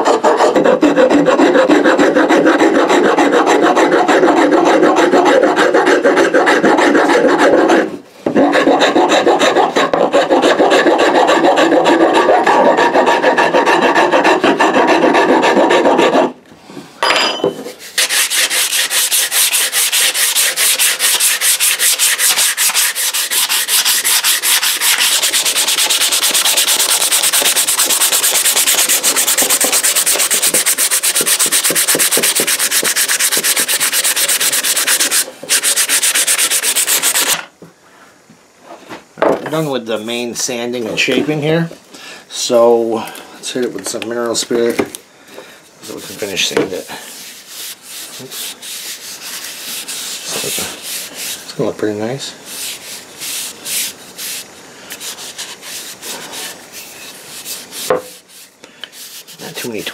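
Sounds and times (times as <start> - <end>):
metal file stroking wood: 0.0 - 16.4, 17.7 - 37.4, 45.8 - 51.6
sandpaper rubbing on wood: 0.0 - 16.4, 17.8 - 37.4, 45.8 - 59.9.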